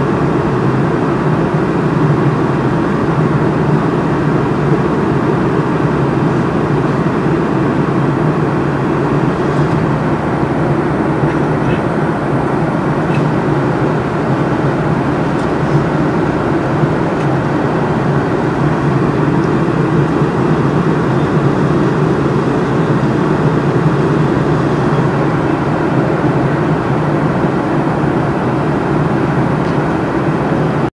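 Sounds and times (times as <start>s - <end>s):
aircraft cabin engine rumble: 0.0s - 30.9s.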